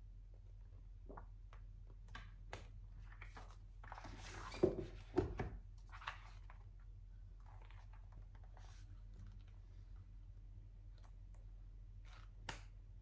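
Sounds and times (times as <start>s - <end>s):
book pages flipping: 1.1s - 9.7s, 12.0s - 12.8s
soft thumps of books moved: 3.9s - 5.6s.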